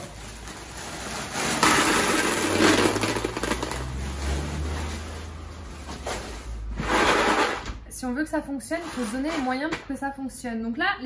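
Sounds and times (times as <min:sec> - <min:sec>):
packaging rustling and clattering: 0:00.0 - 0:07.7.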